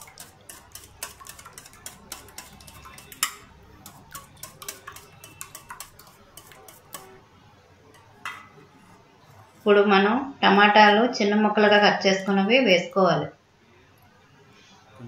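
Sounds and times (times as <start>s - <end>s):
wire whisk clicking in metal bowl: 0.0s - 7.2s.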